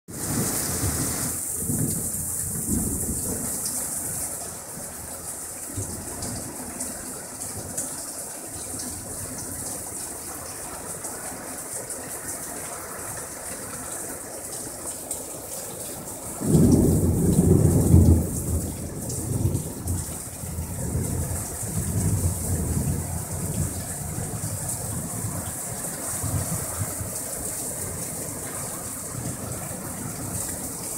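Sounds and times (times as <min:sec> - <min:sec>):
heavy rain pouring: 0:00.1 - 0:30.9
low thunder rumbling: 0:00.2 - 0:04.2, 0:16.2 - 0:30.9
loud thunder clap: 0:16.4 - 0:23.0.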